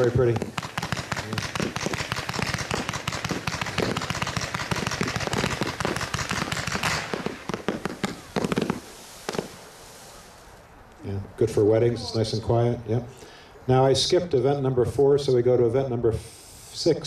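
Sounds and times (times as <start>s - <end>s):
firework shells breaking overhead: 0.0s - 10.1s
fireworks firing rapid shots: 0.0s - 10.2s.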